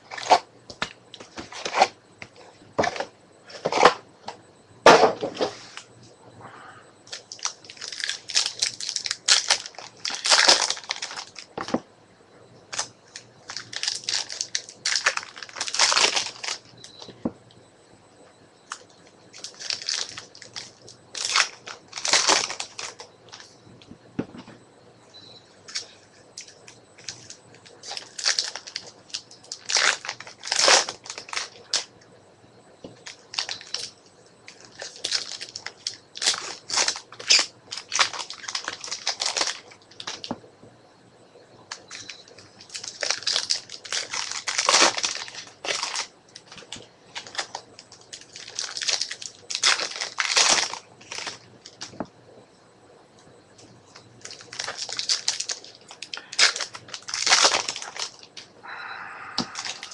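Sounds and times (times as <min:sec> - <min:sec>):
card pack wrappers tearing: 0:00.0 - 0:00.4, 0:07.1 - 0:11.7, 0:12.7 - 0:16.7, 0:19.4 - 0:23.4, 0:25.7 - 0:31.9, 0:33.0 - 0:33.9, 0:34.5 - 0:40.4, 0:41.7 - 0:52.0, 0:54.2 - 0:58.5, 0:59.4 - 0:59.9.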